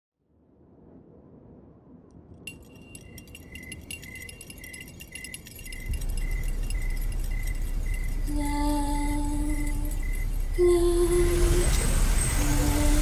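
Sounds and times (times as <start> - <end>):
faint high tinkling: 2.4 - 11.3
deep rumbling drone: 5.6 - 13.0.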